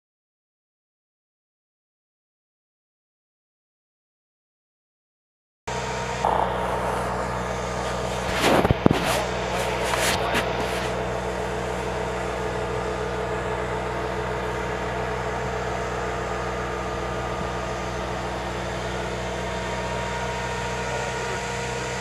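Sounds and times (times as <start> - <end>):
engine idling hum: 5.7 - 22.0
steady whine: 5.7 - 22.0.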